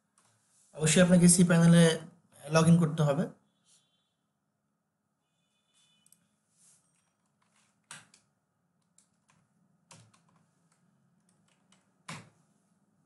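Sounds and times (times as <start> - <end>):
computer keyboard typing: 6.9 - 12.4.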